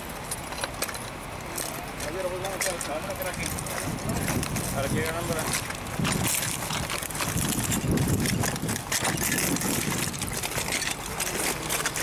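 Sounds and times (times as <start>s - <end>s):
boots crunching on rubble: 1.6s - 12.0s
wind on microphone: 3.5s - 10.8s.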